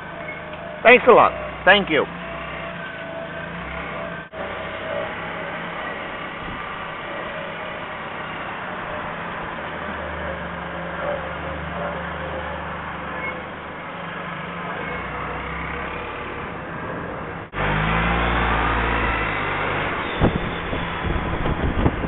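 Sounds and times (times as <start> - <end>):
motorcycle engine drone: 0.0 - 22.0
wind and road noise: 0.0 - 22.0.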